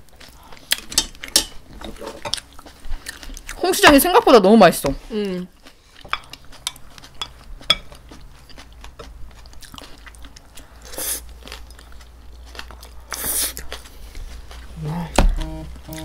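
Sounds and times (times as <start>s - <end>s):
chewing: 0.0s - 3.6s, 5.5s - 16.0s
utensils clicking against dishes: 0.8s - 2.4s.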